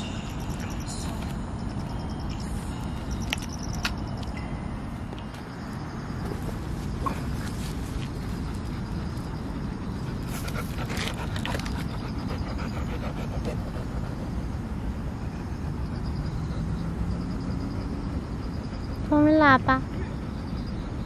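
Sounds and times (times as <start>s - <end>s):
insects chirping: 0.0s - 21.0s
steady low rumble: 0.0s - 21.0s
rustling: 6.2s - 8.4s.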